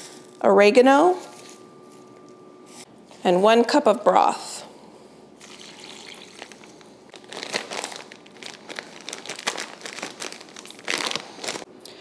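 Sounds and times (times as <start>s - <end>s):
plastic bag crinkling: 5.4s - 11.7s.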